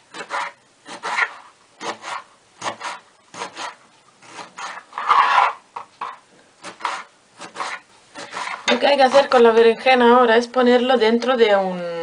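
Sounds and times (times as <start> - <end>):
knife cutting on cutting board: 0.1 - 9.3.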